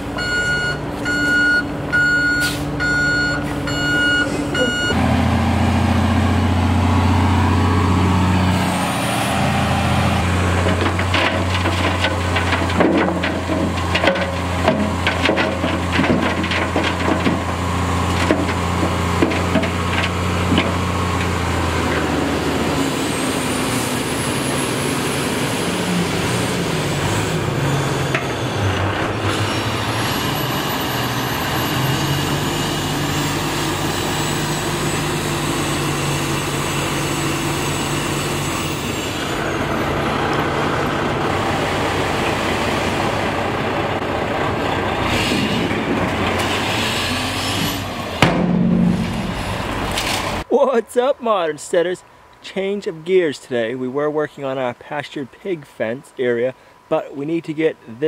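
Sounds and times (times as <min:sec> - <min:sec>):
truck engine running: 0:00.0 - 0:50.5
reversing alarm beeping: 0:00.2 - 0:05.0
gravel sliding and clattering: 0:10.4 - 0:22.1.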